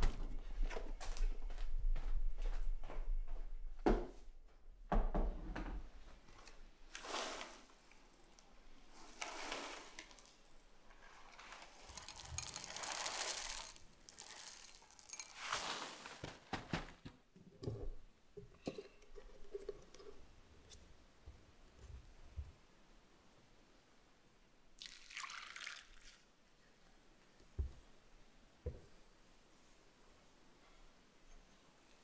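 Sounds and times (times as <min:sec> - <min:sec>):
dry cereal pouring into bowl: 0:09.0 - 0:10.2, 0:11.0 - 0:16.2.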